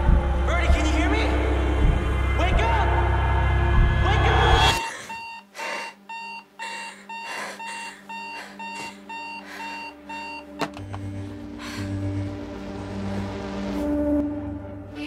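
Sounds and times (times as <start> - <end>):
alarm clock beeping: 4.7 - 11.1.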